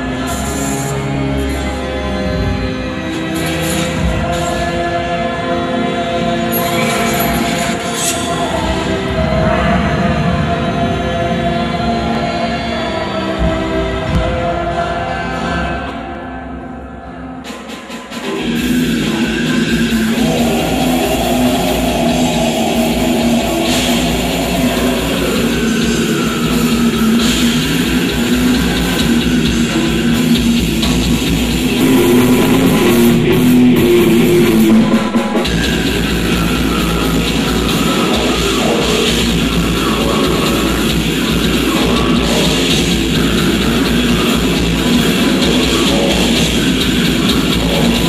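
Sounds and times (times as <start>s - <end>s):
drum kit: 17.5s - 48.0s
electric guitars: 18.2s - 48.0s
heavy rock band playing live: 18.3s - 48.0s.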